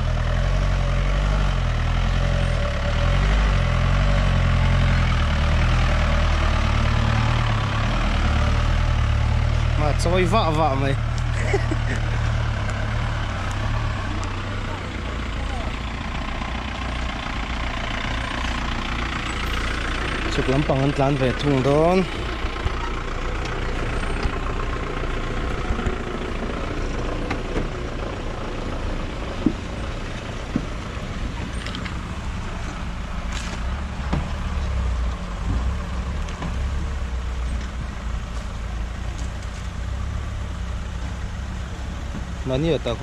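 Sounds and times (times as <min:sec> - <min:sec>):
road noise: 0:00.0 - 0:43.0.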